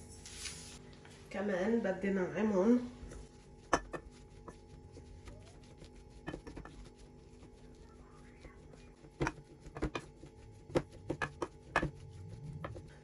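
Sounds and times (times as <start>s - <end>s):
masher pounding potatoes in metal bowl: 3.6s - 13.0s.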